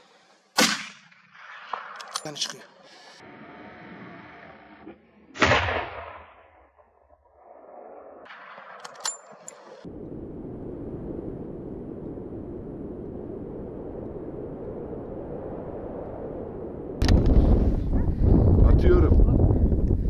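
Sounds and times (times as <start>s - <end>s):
sharp metallic clinks: 8.8s - 9.8s
wind buffeting microphone: 9.8s - 20.0s.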